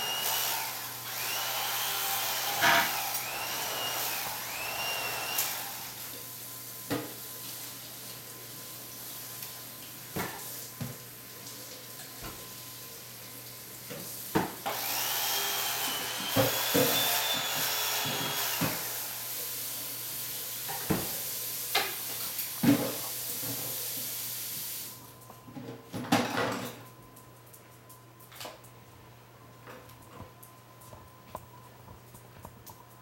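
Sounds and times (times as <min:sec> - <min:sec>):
electric knife motor buzzing: 0:00.0 - 0:06.0, 0:14.7 - 0:19.3.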